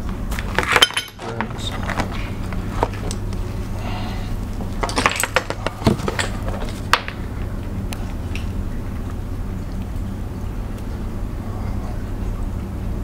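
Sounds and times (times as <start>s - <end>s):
steady low hum: 0.0s - 13.0s
shells clattering on a table: 0.6s - 2.1s, 4.8s - 7.2s.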